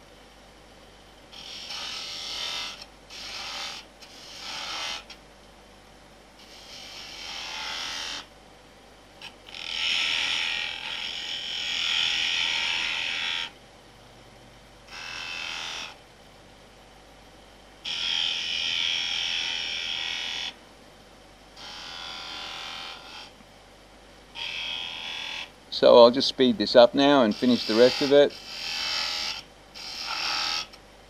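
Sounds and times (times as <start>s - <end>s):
gouge shaving spinning wood: 27.2s - 29.0s.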